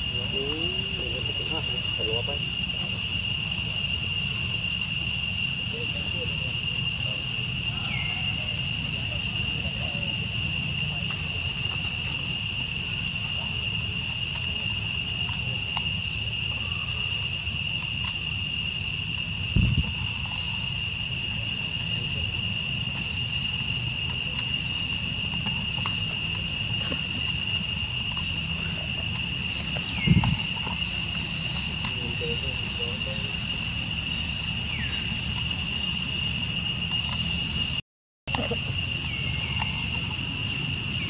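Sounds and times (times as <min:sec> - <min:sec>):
high-pitched insect chorus: 0:00.0 - 0:41.0
low dull thump: 0:19.5 - 0:20.0.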